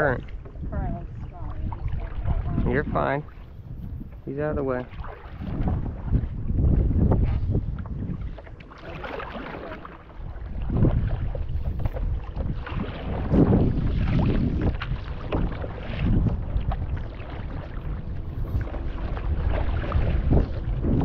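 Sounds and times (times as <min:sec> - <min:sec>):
paddle strokes splashing: 0:00.0 - 0:21.0
wind on microphone: 0:00.0 - 0:21.0.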